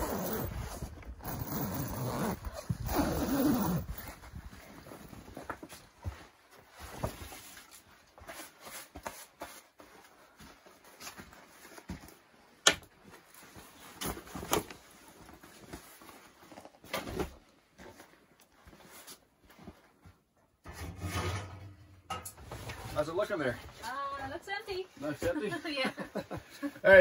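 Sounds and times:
canvas and clothing rustling: 0.0 - 20.9.

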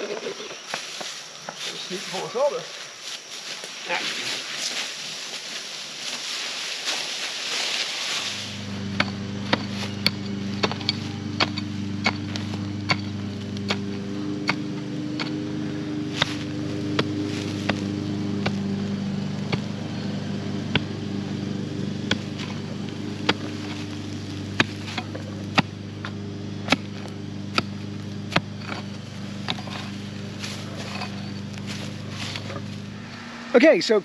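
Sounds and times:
steady low hum: 0.0 - 34.0
mattock striking stony soil: 6.8 - 33.2.

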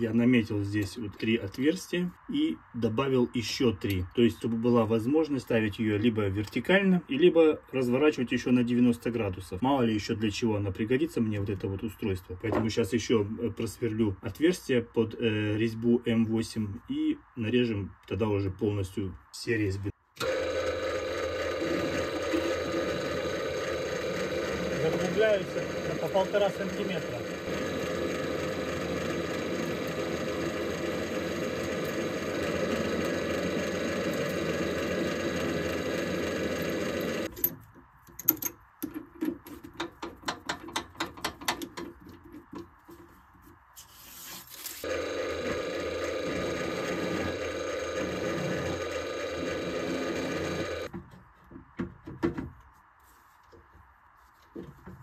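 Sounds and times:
drill press drilling steel: 20.2 - 37.5, 44.8 - 50.9
chuck clicks and rattles: 37.3 - 43.1.

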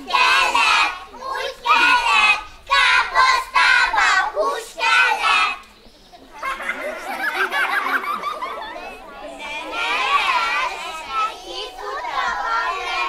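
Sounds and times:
children singing in unison: 0.0 - 5.7, 9.3 - 13.0.

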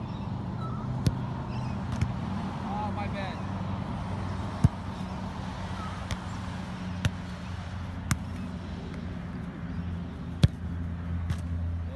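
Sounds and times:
soccer ball thuds: 1.0 - 2.3, 4.5 - 5.1, 6.0 - 6.4, 7.0 - 7.4, 8.0 - 8.5, 10.3 - 11.6.

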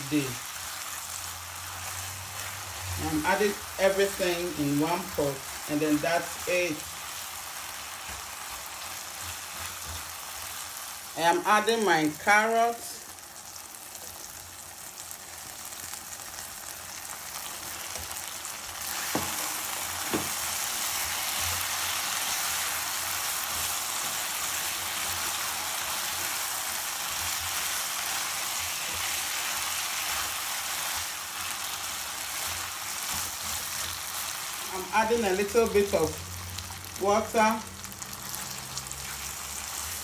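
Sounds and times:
food sizzling in a pan: 0.0 - 40.0.

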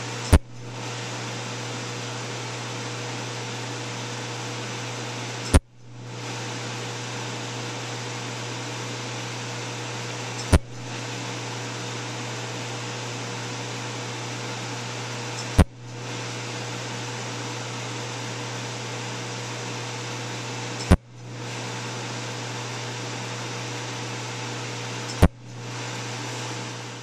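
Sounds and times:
steady machine hum: 0.0 - 27.0
laser pulse snaps: 0.3 - 0.7, 10.4 - 10.9.

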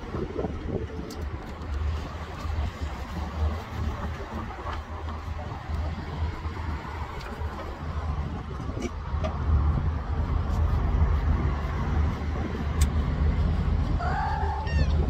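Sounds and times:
wind buffeting microphone: 0.0 - 15.0
cat meowing: 14.1 - 15.0.

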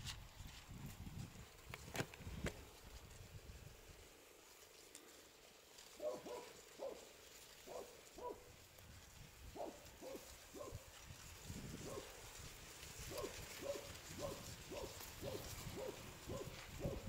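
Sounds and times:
distant dog barking: 6.0 - 7.1, 7.7 - 8.5, 9.6 - 10.8, 11.8 - 12.2, 13.1 - 17.0.

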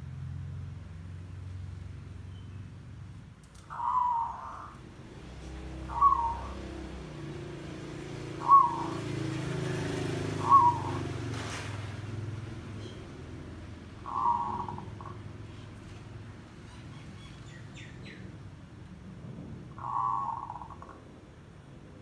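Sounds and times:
dove cooing: 3.7 - 4.8, 5.6 - 7.1, 8.0 - 11.2, 14.0 - 15.4, 19.8 - 21.0.

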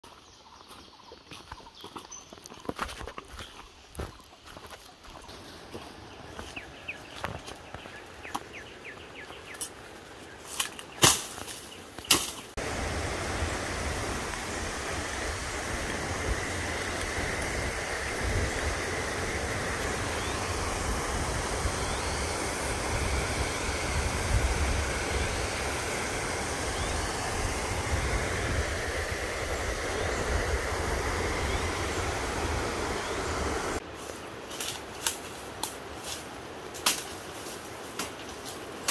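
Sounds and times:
footsteps in dry grass: 0.0 - 12.6
stream running over rapids: 12.4 - 34.5.

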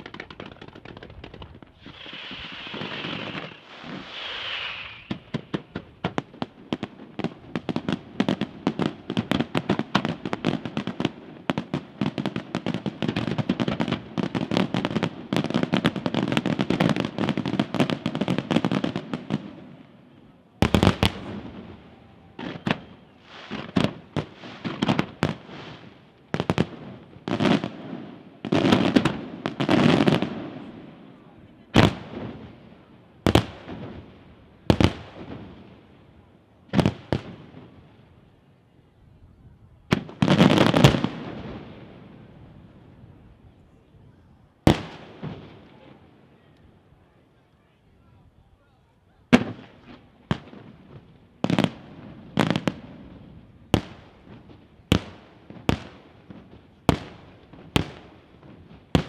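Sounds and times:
loud firework shell bursts: 0.0 - 6.2
fireworks crackling and banging: 0.0 - 38.3, 39.8 - 43.5, 44.5 - 47.0, 49.3 - 59.0
fireworks hissing: 1.2 - 6.2.

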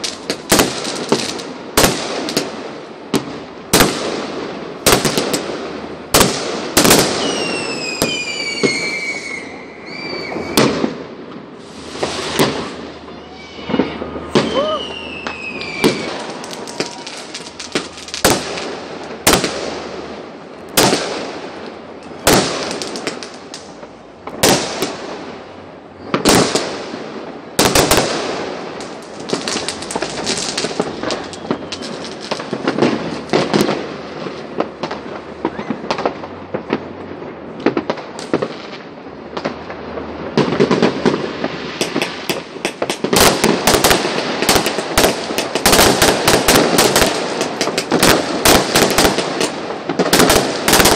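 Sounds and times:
fireworks bursting: 0.0 - 50.9.

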